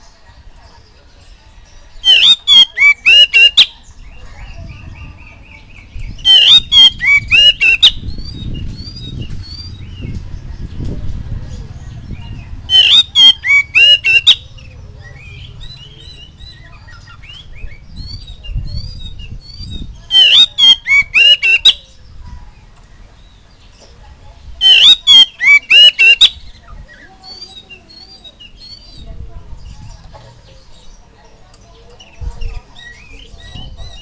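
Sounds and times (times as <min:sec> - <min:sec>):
bird song with sharp notes: 0:00.0 - 0:34.0
soft bird chirps: 0:11.5 - 0:34.0.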